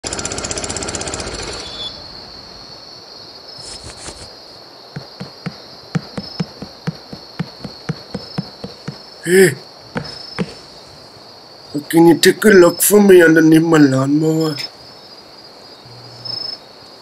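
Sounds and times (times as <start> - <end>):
small lawnmower engine running: 0.0 - 1.9
crickets chirping: 0.1 - 17.0
quick footsteps: 5.0 - 11.0.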